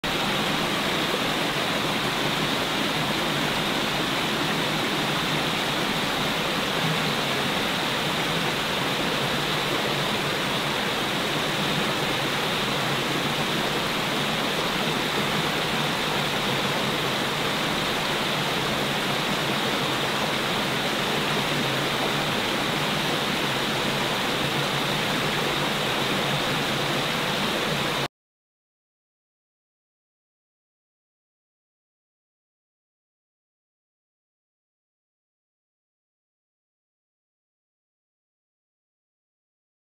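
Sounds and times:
stream rushing over rocks: 0.0 - 28.1.

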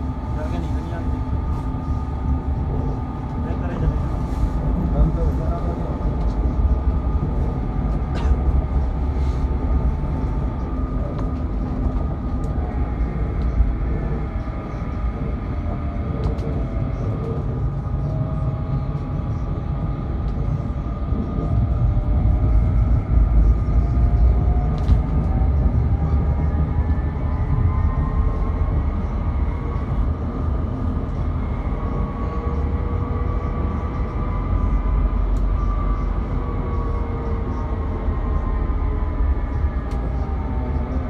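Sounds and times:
tram wheels rumbling on track: 0.0 - 41.0.

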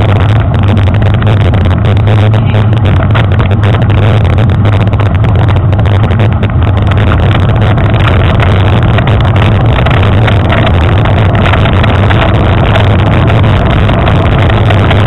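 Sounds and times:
bike rattling on rough trail: 0.0 - 15.0
wind buffeting microphone: 0.0 - 15.0.

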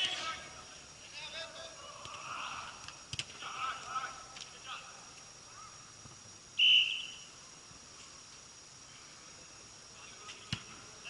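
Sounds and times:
referee's whistle blast: 6.6 - 7.3.

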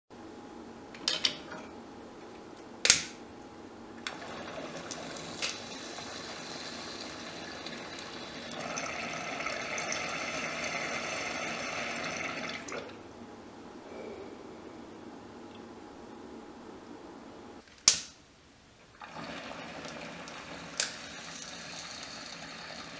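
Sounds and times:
water bubbling in glass jar: 4.2 - 13.0.

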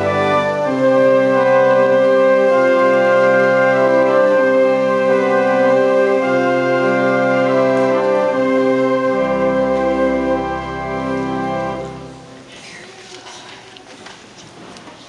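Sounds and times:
church choir singing: 0.0 - 12.0
organ chords: 0.0 - 12.5.

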